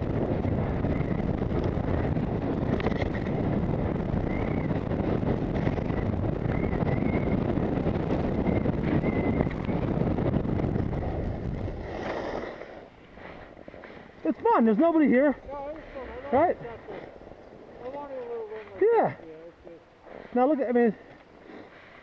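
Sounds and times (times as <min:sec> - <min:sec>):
wind rushing over microphone: 0:00.0 - 0:22.0
skis hissing over snow: 0:11.0 - 0:14.6, 0:20.0 - 0:22.0.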